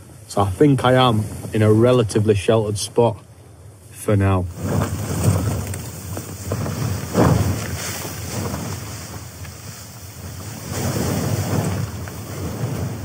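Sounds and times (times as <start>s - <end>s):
wind gusting against tent: 0.0s - 3.2s, 3.8s - 13.0s
nylon flysheet flapping: 4.5s - 13.0s.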